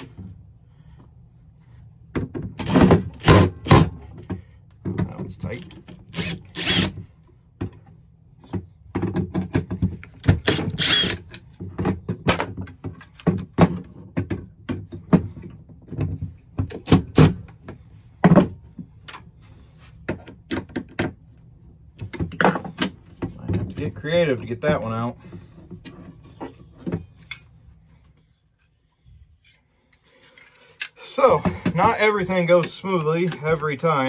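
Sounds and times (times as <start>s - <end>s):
cordless drill: 2.6s - 3.9s, 6.1s - 7.0s, 10.3s - 11.3s.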